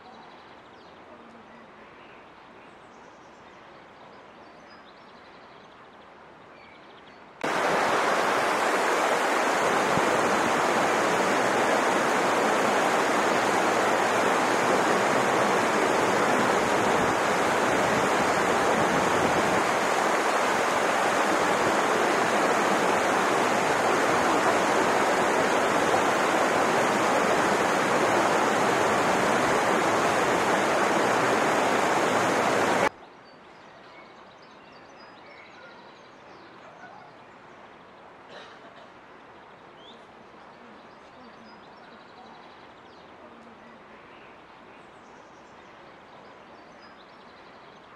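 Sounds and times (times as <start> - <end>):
stream rushing over rocks: 7.4 - 32.9.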